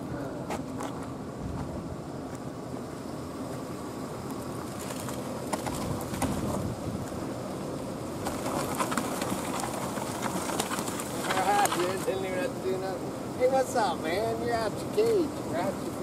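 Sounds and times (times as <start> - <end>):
branches cracking and snapping: 8.2 - 12.1.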